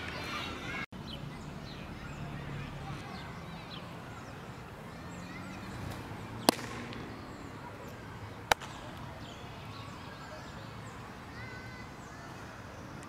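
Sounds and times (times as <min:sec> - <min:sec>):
ball smacking into leather glove: 0:05.9 - 0:07.1.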